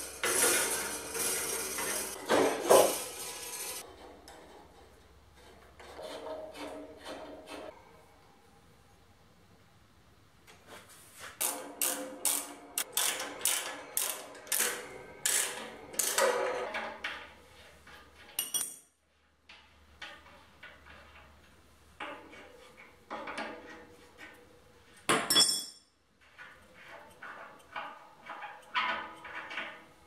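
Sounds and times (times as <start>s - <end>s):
metal fittings rattling and scraping: 0.0s - 7.7s, 11.4s - 18.8s
sharp metal clink: 25.3s - 25.9s.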